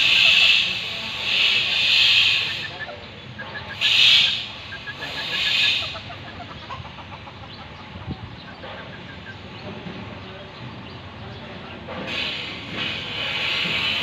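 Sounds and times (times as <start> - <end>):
loud buzzing hiss bursts: 0.0 - 2.9, 3.6 - 6.1, 12.0 - 14.0
chickens clucking softly: 0.0 - 12.2.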